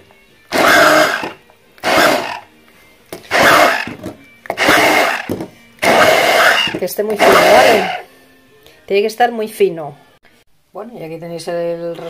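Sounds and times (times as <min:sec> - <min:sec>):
stick blender motor whir: 0:00.5 - 0:02.4, 0:03.3 - 0:08.0.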